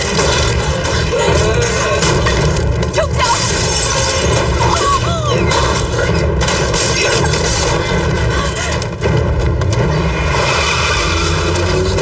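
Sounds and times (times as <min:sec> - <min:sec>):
steady droning roar: 0:07.7 - 0:12.0
car engine running hard: 0:07.8 - 0:12.0.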